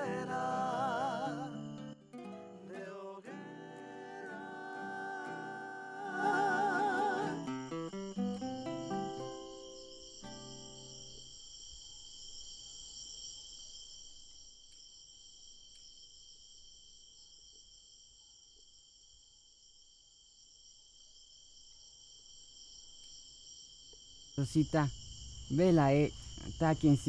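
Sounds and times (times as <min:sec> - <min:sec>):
guitar trio notes ringing: 0:00.0 - 0:10.8
crickets chirring: 0:00.0 - 0:27.0.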